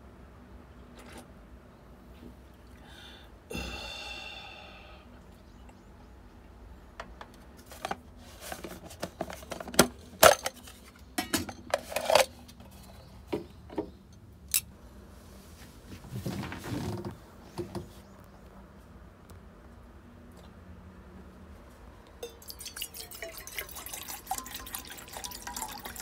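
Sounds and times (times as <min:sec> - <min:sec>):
cooking utensils clinking and knocking: 0:10.2 - 0:12.3.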